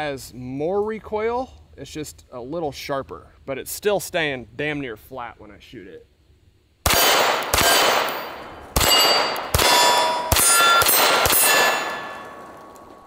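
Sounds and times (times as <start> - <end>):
pistol shots: 6.8 - 13.0
steel targets clanging: 7.0 - 13.0.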